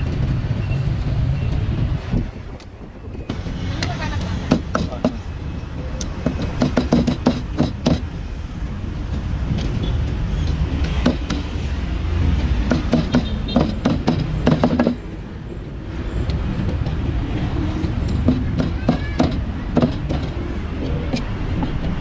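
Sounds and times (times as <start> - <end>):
street traffic rumble: 0.0 - 22.0
cleaver chopping meat on wood: 4.5 - 5.2, 6.2 - 8.1, 12.6 - 15.0.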